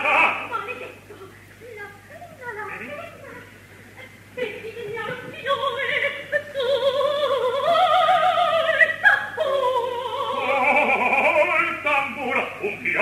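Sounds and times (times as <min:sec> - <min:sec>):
woman singing opera: 0:04.4 - 0:11.3.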